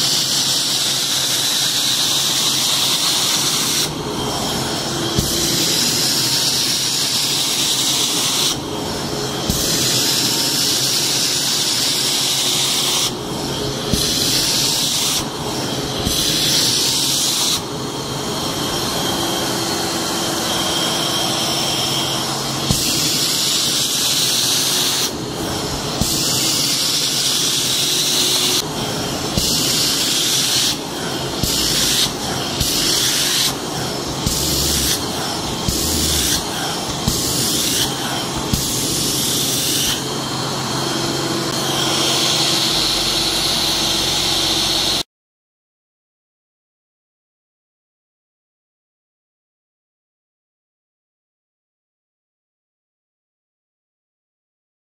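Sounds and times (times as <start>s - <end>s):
spray and suction hiss: 0.0s - 3.9s, 13.9s - 15.3s, 16.0s - 17.6s, 22.7s - 25.1s, 25.9s - 40.0s
vacuum motor running: 0.0s - 45.0s.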